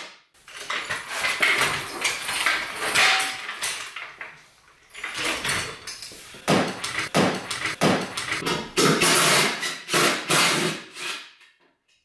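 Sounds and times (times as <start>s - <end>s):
metal tool bursts under car: 5.7s - 10.7s.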